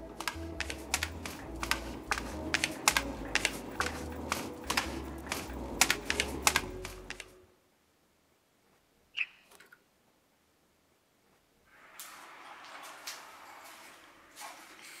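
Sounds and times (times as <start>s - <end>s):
rapid sharp clicks: 0.0s - 7.4s
low hum: 0.0s - 7.6s.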